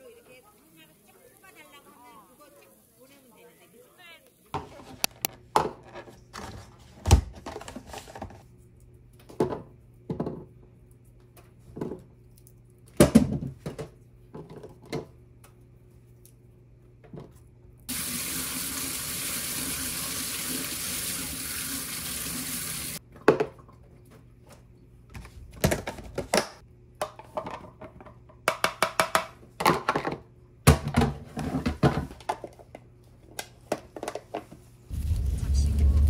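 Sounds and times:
plastic colander knocks and clatters: 0:27.0 - 0:32.5.

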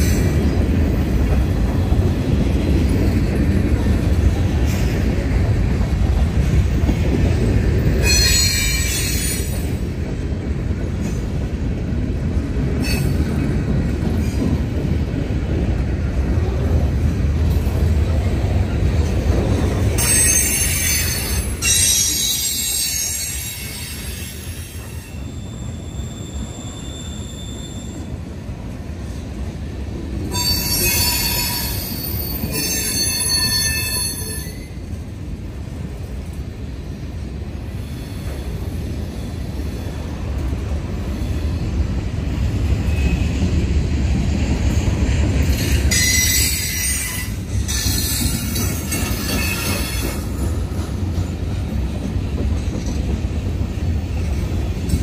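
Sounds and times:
freight train rumbling: 0:00.0 - 0:55.0
train wheels squealing: 0:08.0 - 0:09.8, 0:12.8 - 0:13.4, 0:20.0 - 0:28.3, 0:30.3 - 0:34.8, 0:37.7 - 0:40.0, 0:41.0 - 0:41.8, 0:42.7 - 0:43.5, 0:45.5 - 0:51.4.

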